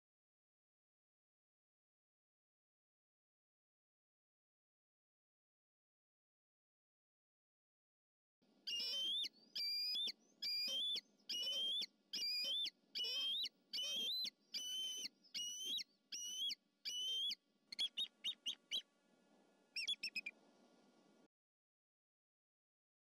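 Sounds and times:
eagle calling: 8.7s - 18.8s, 19.8s - 20.3s.

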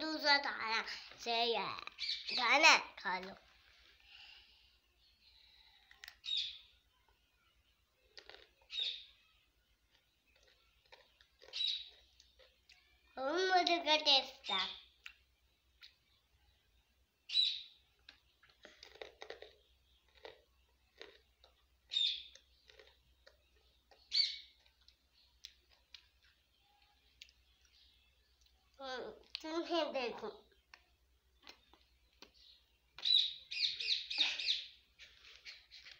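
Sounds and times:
bird chirping: 1.8s - 2.6s, 4.8s - 13.2s, 14.3s - 28.8s, 30.3s - 35.9s
crunching of snack being chewed: 5.8s - 6.2s, 8.0s - 8.8s, 9.8s - 12.9s, 18.0s - 26.4s.

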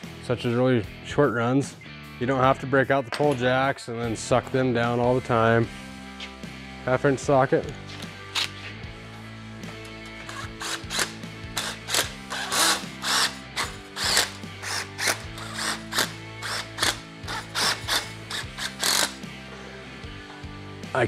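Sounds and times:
socket wrench rattling: 9.8s - 19.2s.

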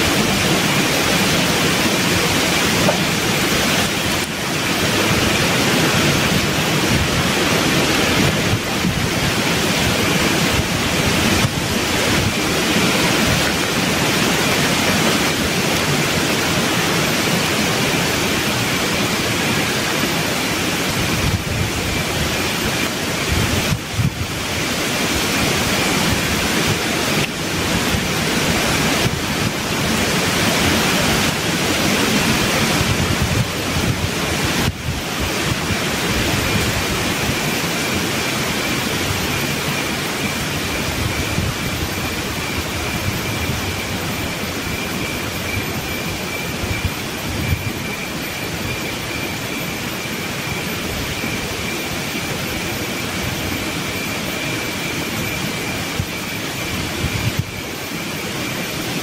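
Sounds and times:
wind rushing through leaves: 0.0s - 59.0s.

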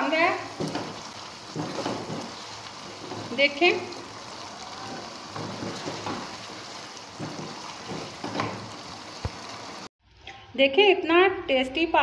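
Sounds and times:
food sizzling in frying pan: 0.0s - 9.9s
spoon scraping pan: 0.6s - 3.5s, 5.0s - 8.9s.

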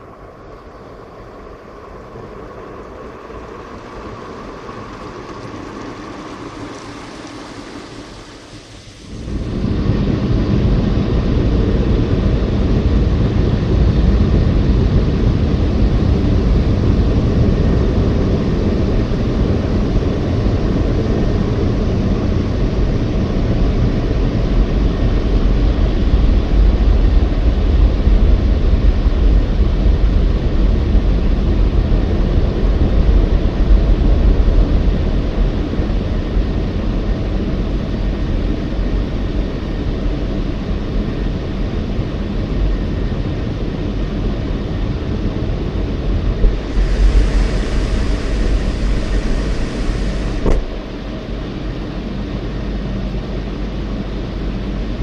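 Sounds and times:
car wash brushes rumbling: 2.1s - 10.1s, 46.2s - 51.2s.

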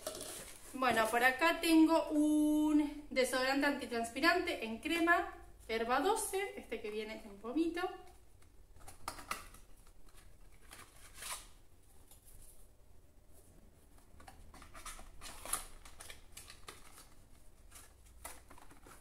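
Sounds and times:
packaging handling clicks and rustles: 8.4s - 11.5s, 13.9s - 19.0s.

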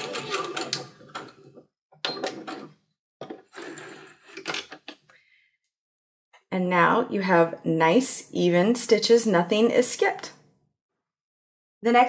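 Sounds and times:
sewing machine stitching: 0.0s - 2.8s
sewing machine clicks and knocks: 0.0s - 3.4s.

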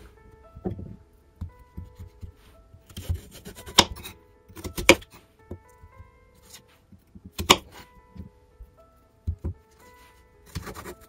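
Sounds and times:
soft background music: 0.0s - 11.0s
knife cutting on wooden board: 1.8s - 5.2s, 7.4s - 7.8s, 10.5s - 11.0s.

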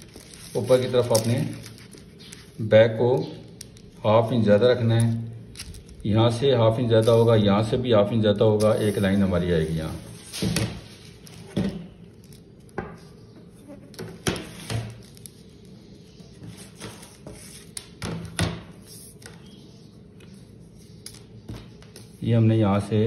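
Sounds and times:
paper rustling and crinkling: 0.0s - 2.7s, 8.6s - 12.5s.

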